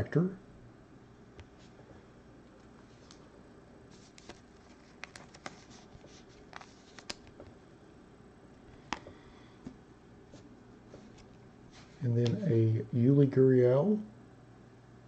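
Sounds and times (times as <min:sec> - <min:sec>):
faint room hum: 0:00.0 - 0:15.0
cards clicking and rustling: 0:04.0 - 0:07.4.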